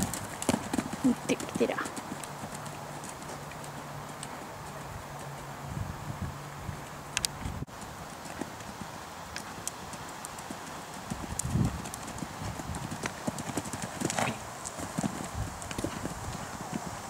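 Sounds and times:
horse hoofbeats on sand: 0.0 - 5.5, 7.7 - 17.0.

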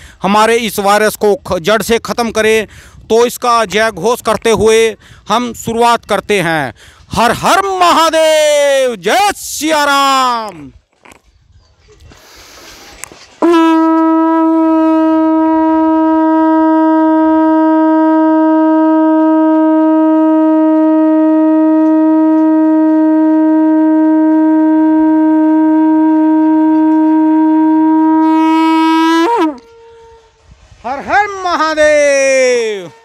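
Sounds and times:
conch shell blown: 13.4 - 33.0.

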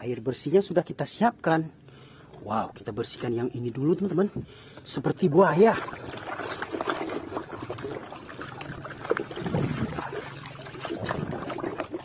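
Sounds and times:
water sloshing in a basin: 4.7 - 12.0
small splashes: 5.4 - 12.0.

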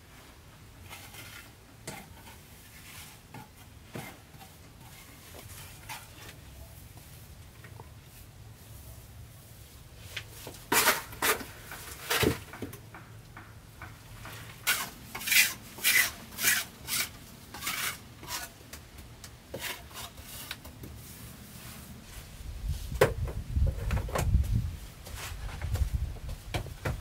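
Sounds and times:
scraping strokes on wood: 0.8 - 7.2, 10.1 - 18.7, 19.5 - 22.3.

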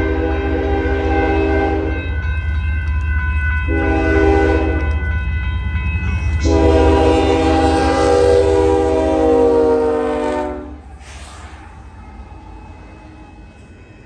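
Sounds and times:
locomotive air horn blasts: 0.0 - 2.0, 3.7 - 5.0, 6.4 - 11.5
train rumble: 0.0 - 14.0.

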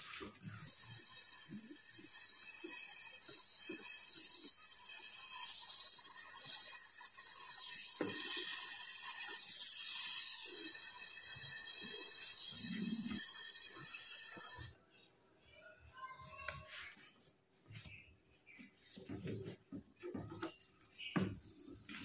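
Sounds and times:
torch flame hissing: 0.4 - 14.8.

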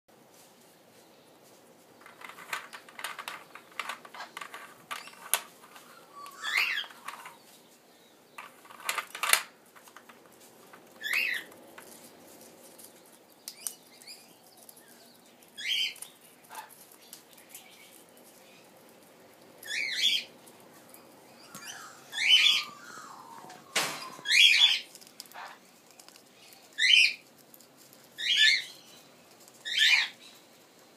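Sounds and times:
parrot falling calls: 21.5 - 24.8.

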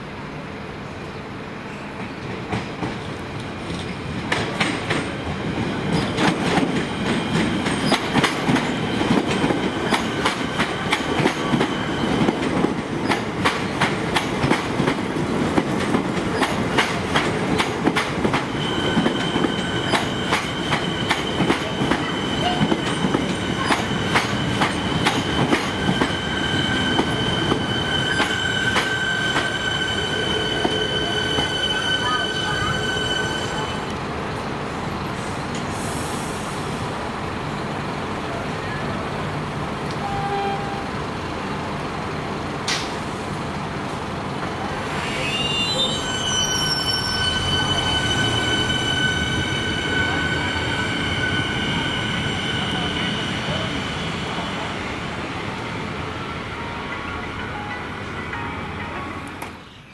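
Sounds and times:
high-pitched brake squeal: 18.5 - 33.9, 44.8 - 54.3.

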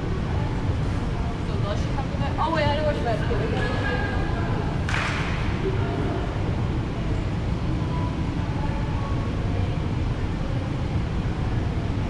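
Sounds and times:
air-handling system rumble: 0.0 - 12.0.

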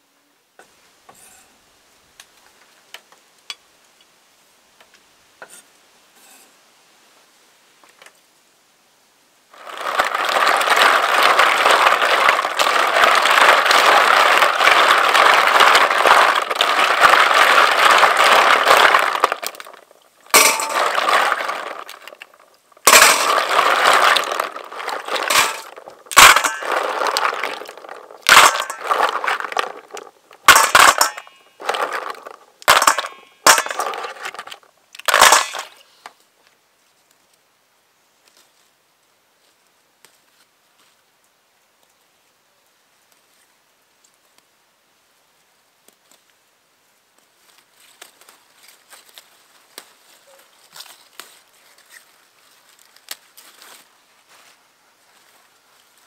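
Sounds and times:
snail shells clattering in water: 9.6 - 35.8.

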